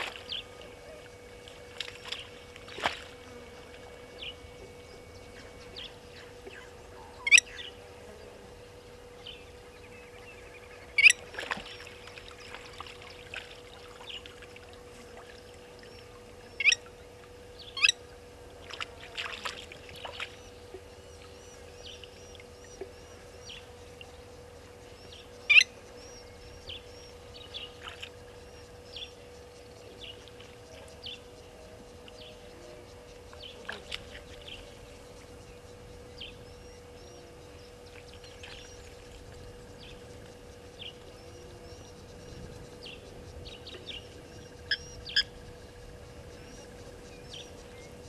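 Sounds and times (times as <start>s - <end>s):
birds chirping: 0.0s - 48.0s
faint steady hum: 0.0s - 48.0s.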